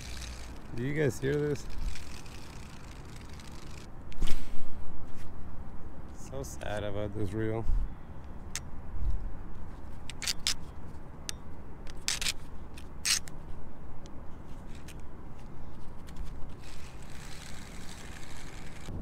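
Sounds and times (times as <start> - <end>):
fishing reel scraping and grinding: 0.0 - 3.9, 10.1 - 10.6, 11.9 - 12.4, 13.0 - 13.3, 16.6 - 18.9.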